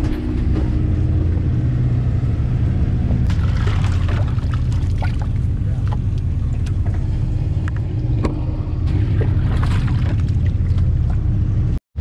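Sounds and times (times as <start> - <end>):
boat engine rumbling: 0.0 - 12.0
water splashes and ticks: 3.2 - 8.3, 8.9 - 11.4
dip net in bait tank: 3.3 - 5.4, 8.9 - 11.2.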